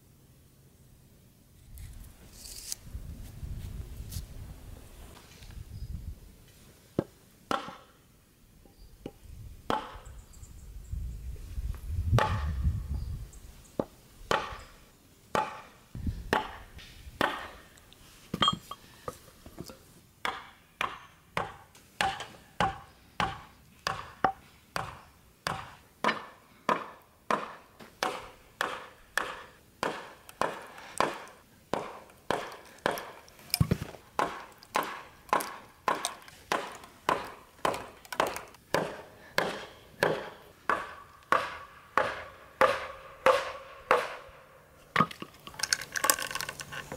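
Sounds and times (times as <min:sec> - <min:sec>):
hammer blows on hatchet: 0:20.3 - 0:44.3.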